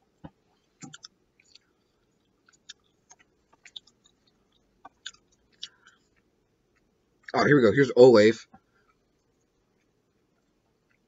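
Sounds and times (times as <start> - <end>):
person chewing: 0.3 - 7.3, 8.8 - 11.0.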